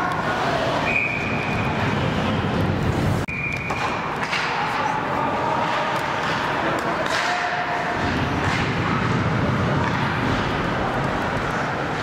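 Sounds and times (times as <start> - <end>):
crowd and arena noise: 0.0 - 12.0.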